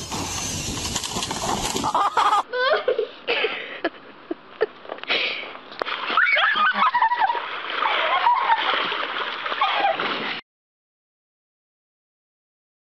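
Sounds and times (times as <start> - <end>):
girl shrieking: 6.1 - 7.1.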